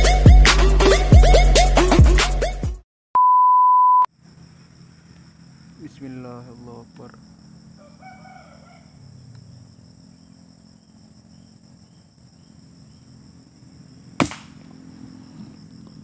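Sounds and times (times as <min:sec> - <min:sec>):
high-pitched background hum: 0:04.5 - 0:16.0
air rifle shot: 0:14.2 - 0:14.6.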